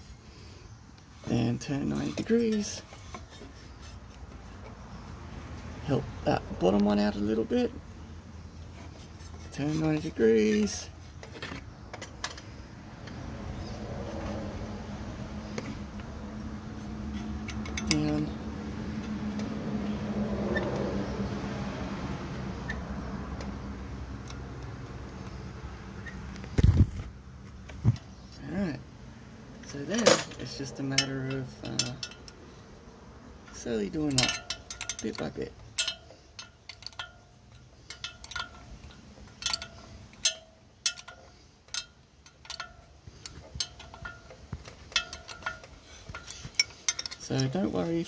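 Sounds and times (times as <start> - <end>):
light ticks of bolts threading: 8.6 - 14.7, 15.4 - 21.4, 22.5 - 26.5, 29.5 - 48.0.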